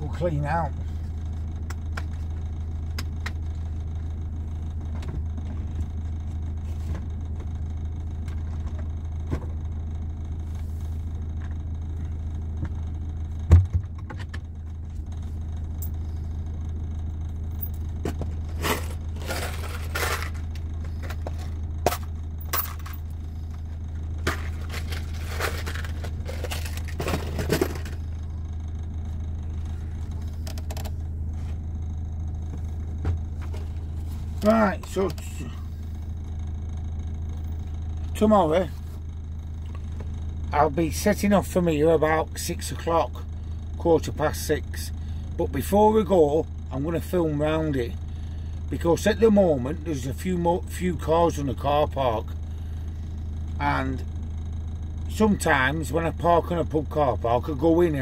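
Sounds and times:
van engine idling: 0:00.0 - 0:58.0
items scraping and clattering: 0:18.1 - 0:22.0, 0:24.2 - 0:28.1.

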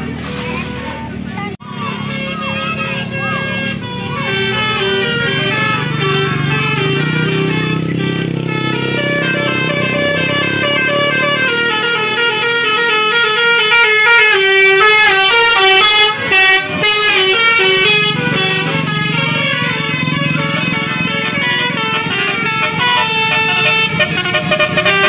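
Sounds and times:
bus engine rumble: 0:00.0 - 0:25.0
bus musical horn tune: 0:01.6 - 0:25.0.

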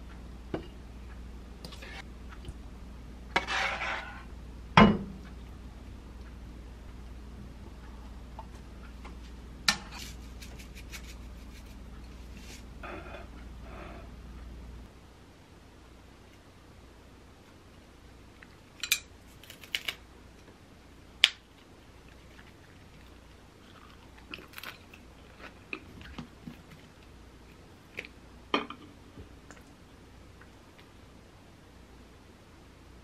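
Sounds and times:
biting and chewing crunches: 0:22.2 - 0:26.8.

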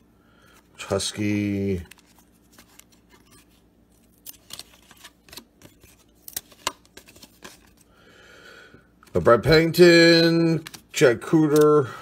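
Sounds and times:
cards clicking and snapping: 0:04.1 - 0:07.8, 0:10.5 - 0:11.8.

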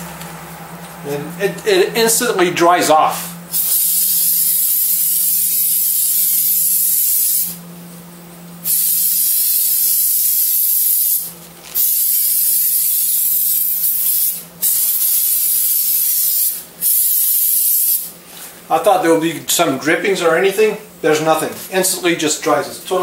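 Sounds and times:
aerosol spray can hissing: 0:03.5 - 0:07.6, 0:08.6 - 0:18.2.

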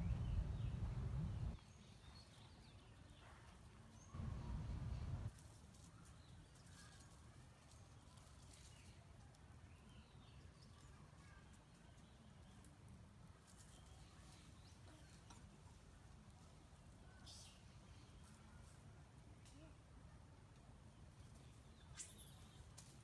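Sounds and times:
low rumble on microphone: 0:00.0 - 0:01.6, 0:04.2 - 0:05.3.

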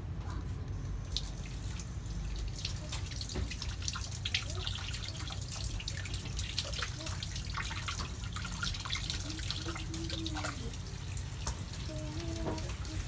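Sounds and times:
tap water splashing over hands: 0:01.1 - 0:13.0.

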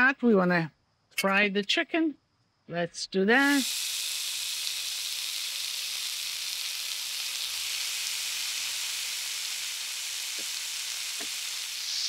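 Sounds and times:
chicken sizzling in hot oil: 0:03.4 - 0:12.0.

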